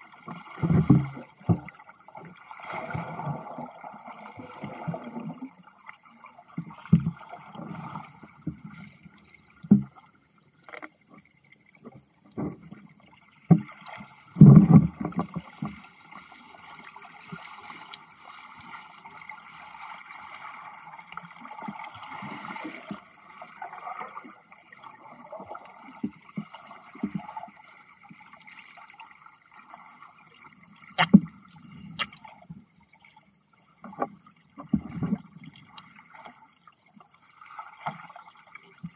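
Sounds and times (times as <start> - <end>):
water sloshing and bubbling: 0.0 - 38.9
low underwater thuds: 0.5 - 1.8.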